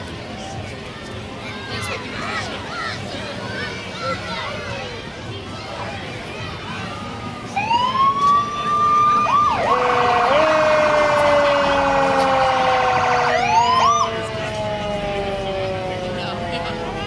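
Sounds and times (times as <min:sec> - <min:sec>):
fire truck siren wailing: 0:07.6 - 0:17.0.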